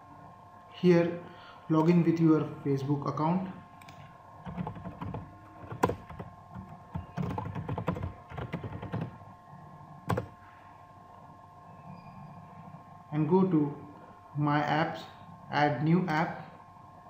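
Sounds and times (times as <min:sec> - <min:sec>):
faint steady hum: 0:00.0 - 0:17.0
computer keyboard typing: 0:04.4 - 0:09.2, 0:10.1 - 0:10.3.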